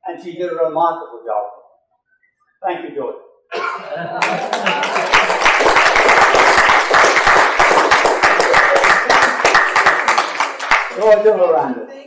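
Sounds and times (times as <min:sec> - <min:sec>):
audience applauding: 0:04.2 - 0:11.5.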